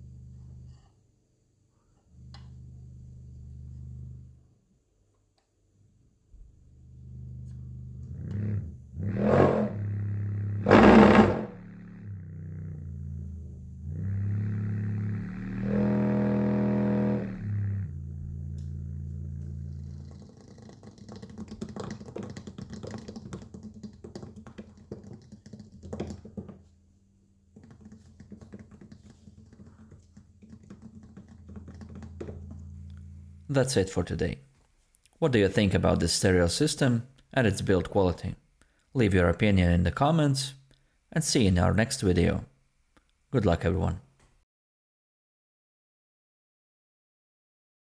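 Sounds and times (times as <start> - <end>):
subwoofer low test tone: 6.8 - 20.2, 31.8 - 33.5
loud bass bursts: 8.4 - 19.7
object rattling on speaker cone: 19.7 - 26.7, 27.5 - 33.0.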